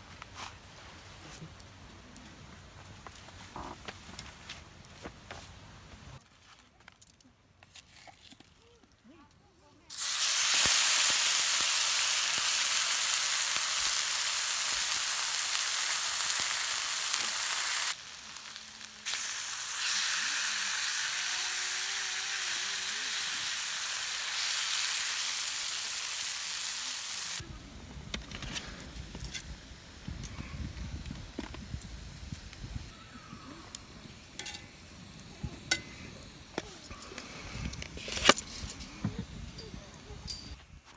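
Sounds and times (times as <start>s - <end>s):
beef sizzling in a frying pan: 9.9s - 27.4s.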